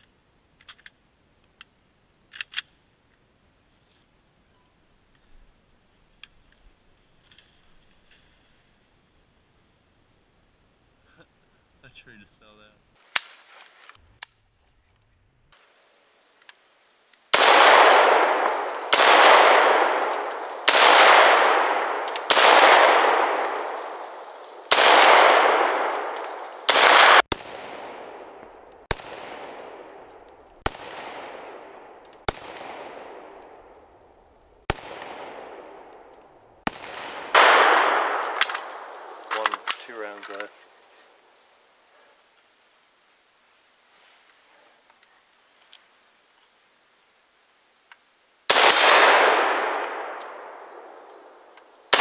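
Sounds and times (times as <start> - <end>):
rifle shots with echo: 17.3 - 33.8, 34.7 - 40.5, 48.5 - 52.0.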